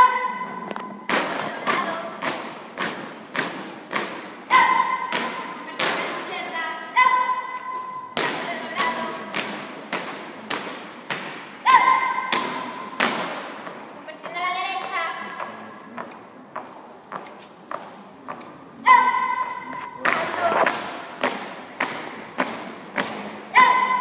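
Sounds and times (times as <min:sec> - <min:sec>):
marching feet on concrete: 0:00.7 - 0:06.5, 0:12.3 - 0:18.6
high-pitched shouted calls: 0:04.5 - 0:05.6, 0:06.8 - 0:08.2, 0:11.6 - 0:13.0, 0:18.8 - 0:20.7, 0:23.5 - 0:24.0.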